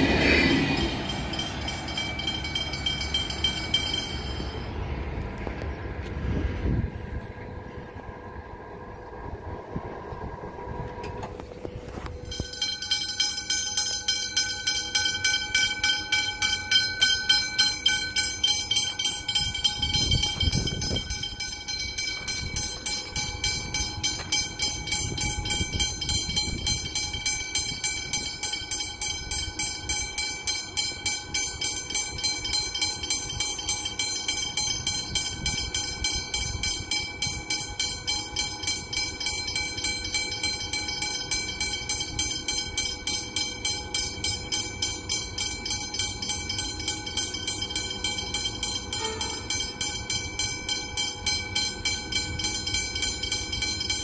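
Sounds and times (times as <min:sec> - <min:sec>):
level crossing bells clanging: 0:00.0 - 0:04.9, 0:12.1 - 0:54.0
low rumble: 0:00.0 - 0:12.6.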